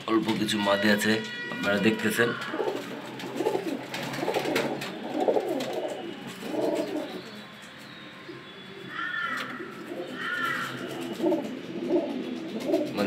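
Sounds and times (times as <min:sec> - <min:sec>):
pigeons cooing: 0:01.4 - 0:13.0
short higher pigeon calls: 0:08.8 - 0:13.0.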